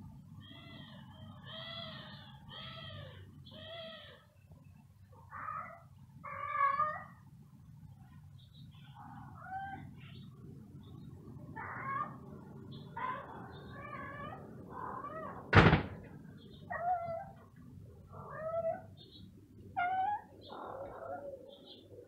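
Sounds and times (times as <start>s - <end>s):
loud thump: 15.5s - 16.1s.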